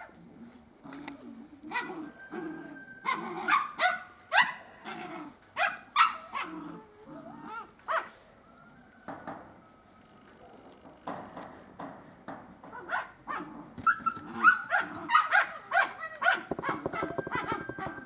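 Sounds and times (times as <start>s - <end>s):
puppies barking and yipping: 1.4s - 8.5s, 12.7s - 18.0s.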